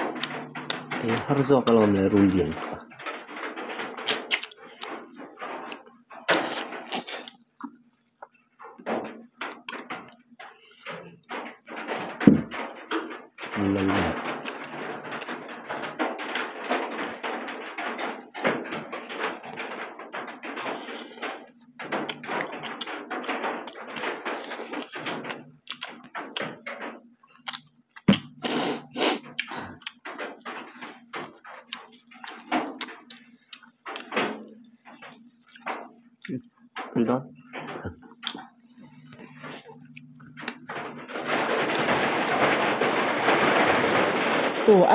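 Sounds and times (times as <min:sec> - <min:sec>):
chewing and lip-smacking: 0:04.1 - 0:04.9, 0:38.2 - 0:40.6.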